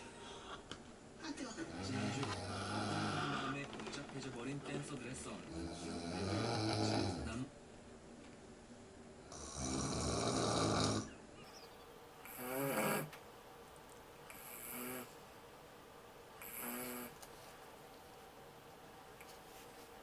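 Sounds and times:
man snoring: 1.7s - 3.6s, 5.5s - 7.4s, 9.2s - 11.1s, 12.3s - 13.2s, 14.3s - 15.2s, 16.4s - 17.2s.

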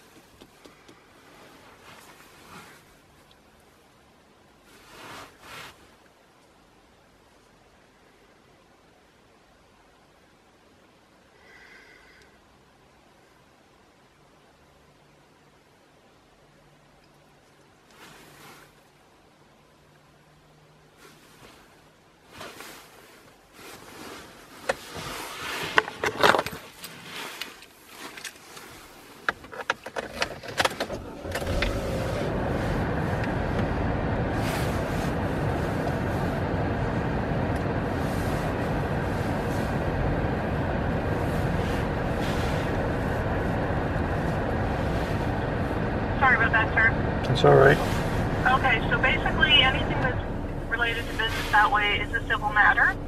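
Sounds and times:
car engine running: 30.8s - 53.0s.

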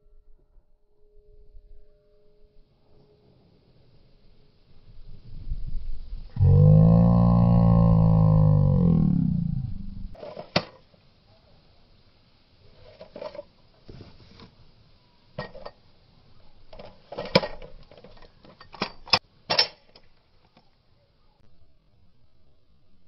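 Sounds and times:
deep sound falling in pitch: 6.3s - 10.2s.

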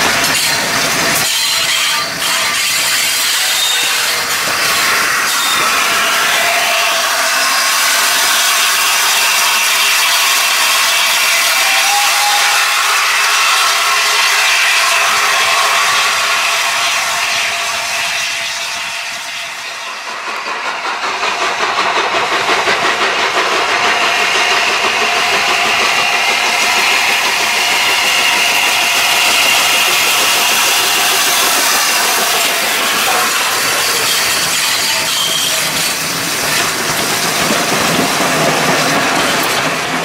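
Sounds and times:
steam hiss: 0.0s - 40.0s
steam locomotive passing: 0.0s - 40.0s
locomotive exhaust beats: 18.0s - 40.0s.

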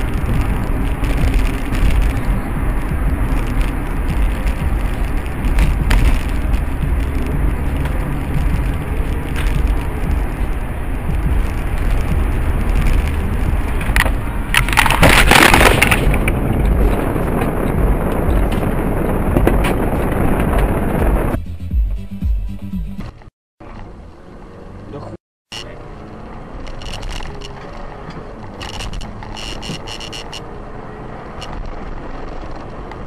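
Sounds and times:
road noise inside car: 0.0s - 21.6s, 23.1s - 33.0s
car crash impact: 12.7s - 20.8s.

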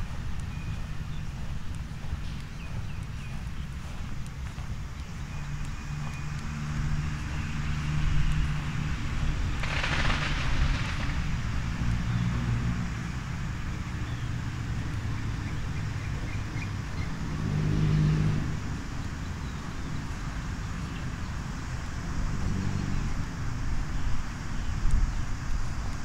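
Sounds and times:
passing vehicle engines: 0.0s - 26.0s.

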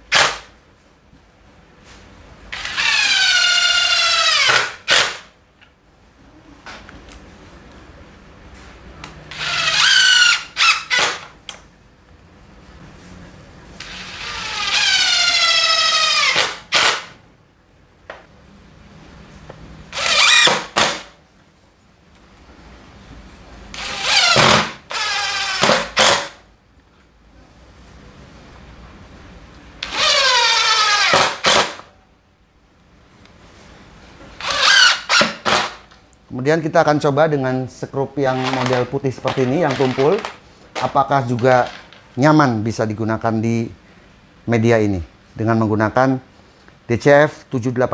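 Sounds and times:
impact driver driving screws: 2.6s - 5.2s, 13.8s - 17.1s, 19.9s - 21.1s, 23.8s - 26.4s, 29.8s - 31.8s, 34.4s - 35.8s, 38.4s - 40.3s.

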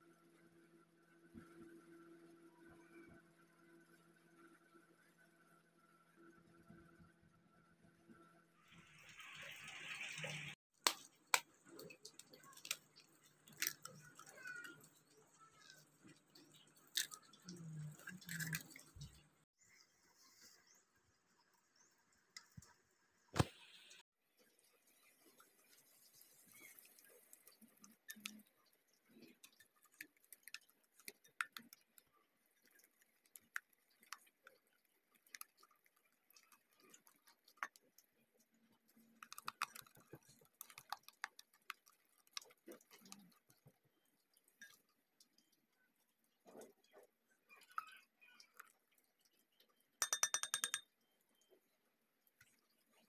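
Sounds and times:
whisk tapping glass bowl: 50.0s - 50.9s.

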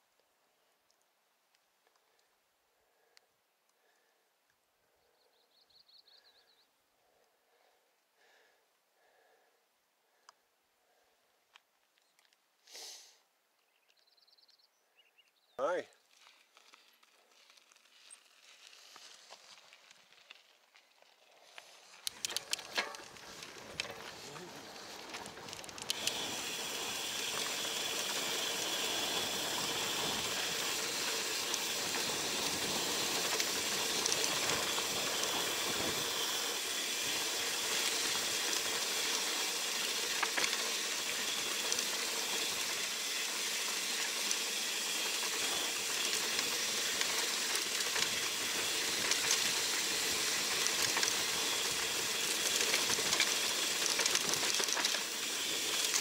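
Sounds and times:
bike tyres on dirt: 12.9s - 56.0s
small clicks and rattles: 16.2s - 56.0s.

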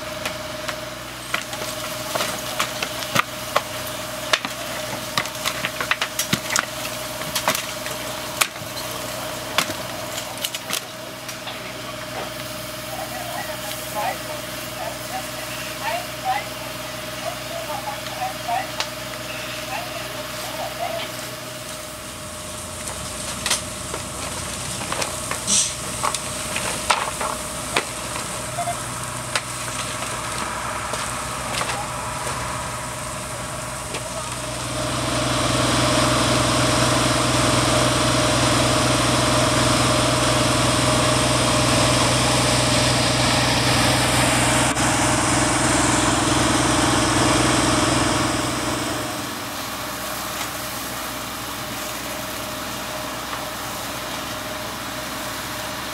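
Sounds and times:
fire engine idling: 0.0s - 55.9s
loud rushing hiss: 25.4s - 25.9s.

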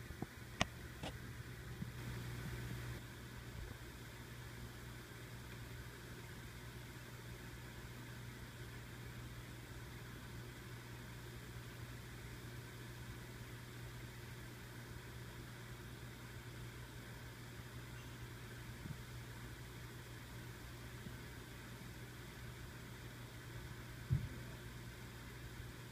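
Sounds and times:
faint hiss: 0.0s - 25.9s
steady low hum: 0.0s - 25.9s.

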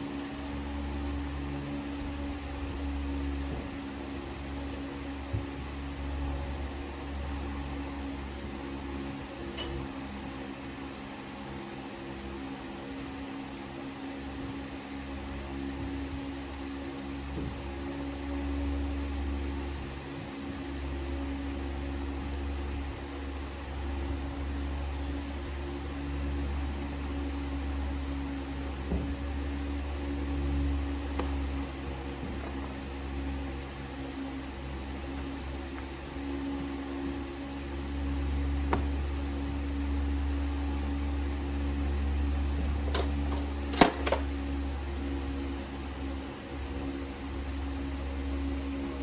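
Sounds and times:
motor humming: 17.3s - 49.0s.

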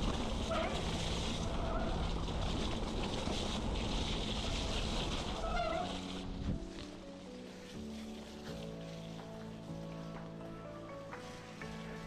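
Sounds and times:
bike tyre and frame rattle: 0.0s - 12.0s
music: 3.7s - 12.0s.

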